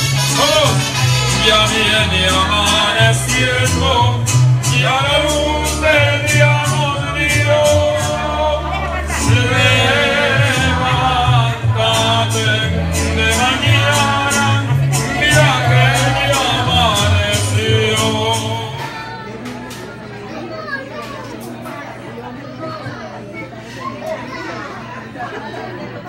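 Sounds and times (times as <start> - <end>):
bass line: 0.0 - 19.1
latin song with vocals: 0.0 - 19.9.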